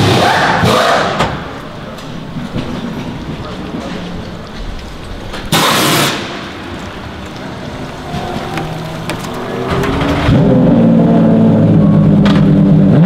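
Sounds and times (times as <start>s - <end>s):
race car engine running: 0.0s - 13.0s
loud hiss blast: 5.5s - 6.5s.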